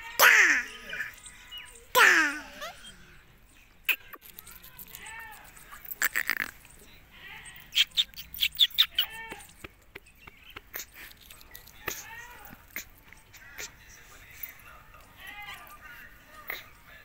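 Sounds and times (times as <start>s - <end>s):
parakeet chirping: 0.6s - 12.0s
beak cracking pea pod: 3.9s - 6.7s, 7.6s - 13.0s.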